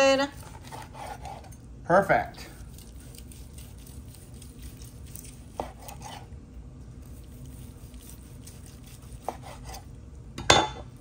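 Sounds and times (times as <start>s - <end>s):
knife slicing meat: 0.3s - 1.6s, 2.6s - 6.3s, 7.0s - 9.9s.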